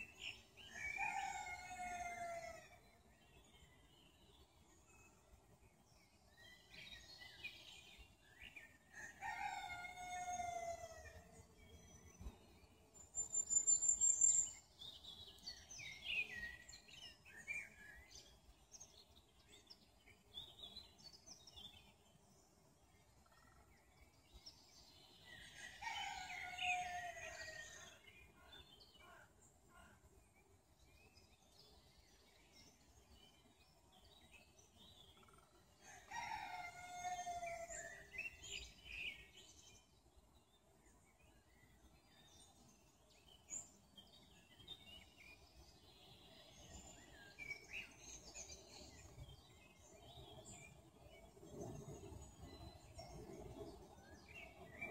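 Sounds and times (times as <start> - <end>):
songbirds chirping and whistling: 0.0 - 54.9
rooster crowing: 25.6 - 27.7, 35.8 - 37.8.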